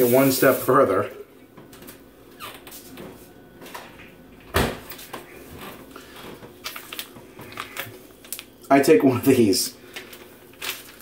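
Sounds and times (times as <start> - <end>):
door squeaking: 2.3 - 2.8.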